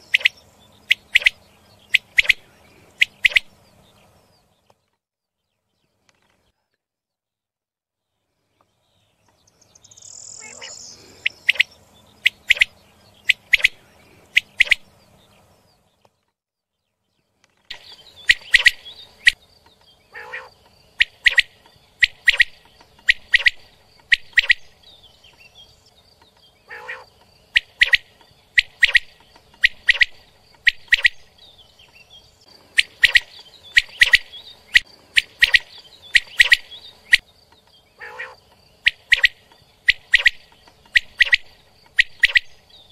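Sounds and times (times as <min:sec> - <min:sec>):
quail singing: 0:00.0 - 0:04.0, 0:10.0 - 0:15.4, 0:17.7 - 0:19.4, 0:20.1 - 0:25.8, 0:26.6 - 0:37.3, 0:37.9 - 0:42.9.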